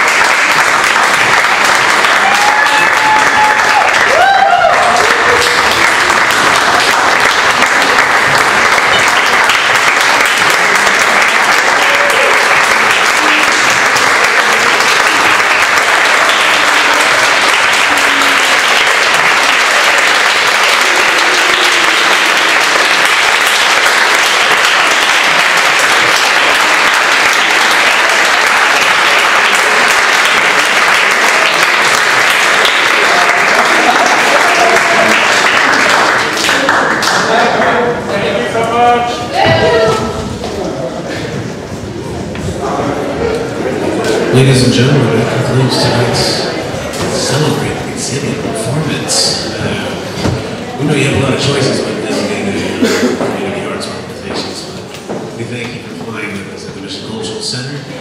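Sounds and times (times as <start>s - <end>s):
audience applauding loudly: 0.0s - 55.8s.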